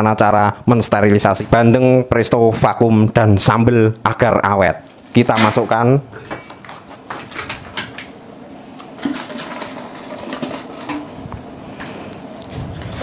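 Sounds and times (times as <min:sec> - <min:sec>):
plastic rustling: 0:04.8 - 0:11.6, 0:12.3 - 0:13.0.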